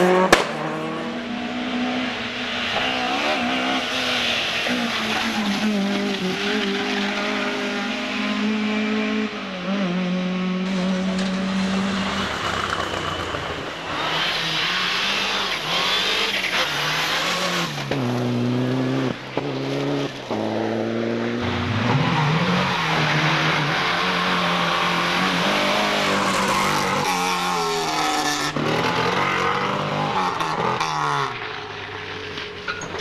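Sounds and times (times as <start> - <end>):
rally car engines revving: 0.0 - 33.0
tyres squealing and skidding: 2.4 - 7.6, 11.2 - 17.9, 21.4 - 33.0.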